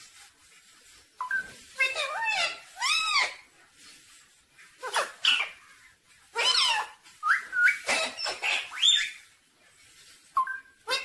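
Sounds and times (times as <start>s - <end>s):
parakeet squawking and chattering: 1.3s - 3.5s, 4.8s - 9.4s, 10.7s - 11.0s.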